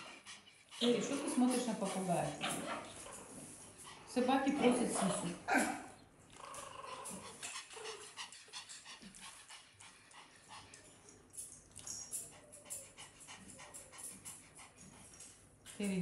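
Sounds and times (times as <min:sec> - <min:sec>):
puppies suckling: 0:00.0 - 0:05.4.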